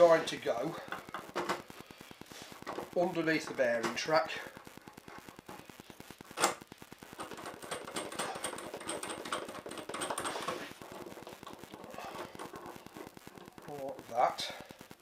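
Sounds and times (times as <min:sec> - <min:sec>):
steel parts clicking and rattling: 0:07.2 - 0:11.1.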